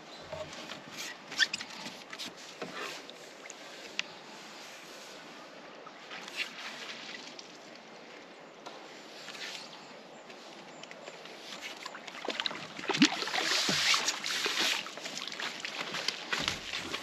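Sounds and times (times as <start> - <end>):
water sloshing through net: 11.6 - 17.0.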